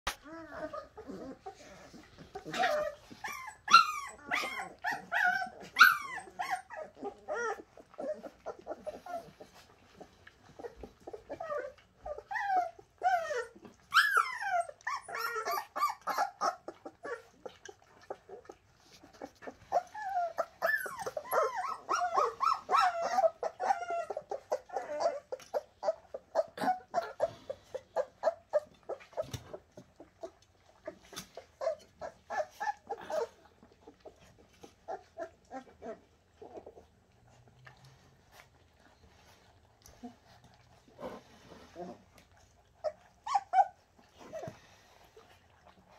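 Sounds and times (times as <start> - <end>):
puppies whimpering and yipping: 0.1 - 45.9.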